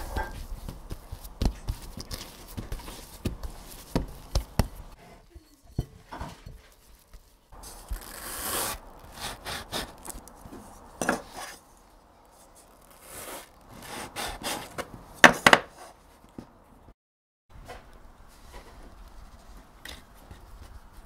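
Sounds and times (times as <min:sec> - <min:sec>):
hands working dough on board: 0:00.0 - 0:08.2.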